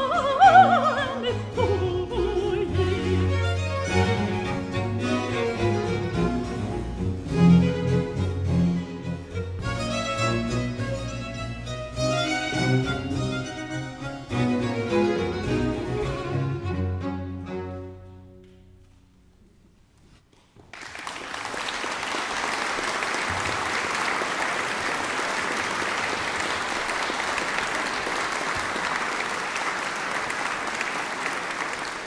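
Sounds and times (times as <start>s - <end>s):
audience applauding: 20.6s - 32.0s.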